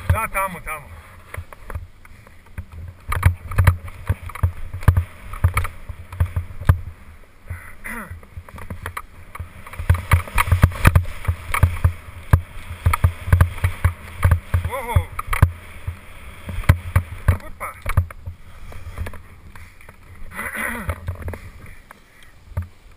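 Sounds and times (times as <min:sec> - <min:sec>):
skis on packed snow: 0:03.6 - 0:07.2, 0:08.3 - 0:22.2.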